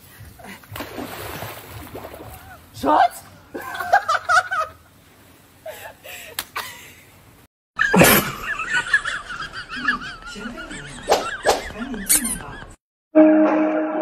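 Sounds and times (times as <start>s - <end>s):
people laughing: 3.5s - 4.8s, 7.8s - 12.8s.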